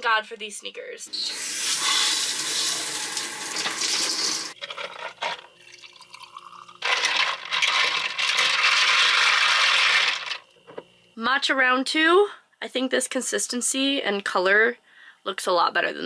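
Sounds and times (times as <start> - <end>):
shower water spraying: 1.2 - 4.6
soft water pour: 5.6 - 6.8.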